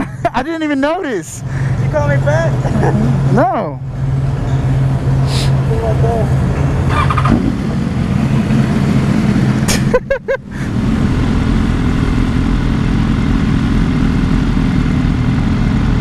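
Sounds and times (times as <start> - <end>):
road noise: 0.0 - 16.0
motorcycle engine running: 1.4 - 16.0.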